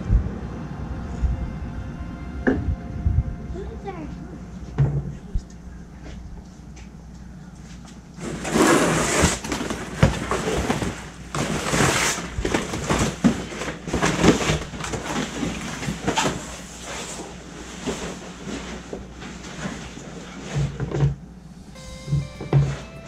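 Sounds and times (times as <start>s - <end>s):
plastic sheet rustling: 8.2s - 20.5s.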